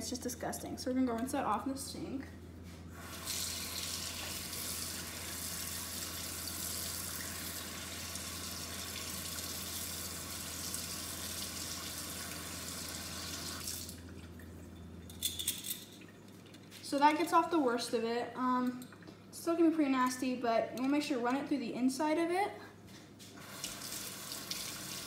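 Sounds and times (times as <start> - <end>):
water running from sink tap: 3.0 - 14.1, 23.4 - 25.0.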